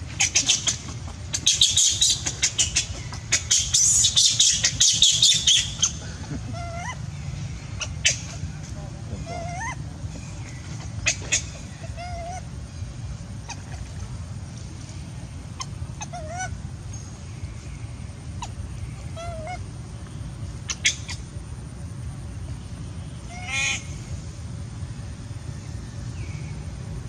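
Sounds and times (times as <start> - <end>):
baby monkey crying: 0.0 - 8.5, 9.2 - 10.0, 10.8 - 12.5, 15.6 - 16.6, 18.3 - 19.6, 23.2 - 23.9
baby monkey whimpering: 0.2 - 7.0, 9.2 - 9.8, 11.0 - 12.5, 16.0 - 16.5.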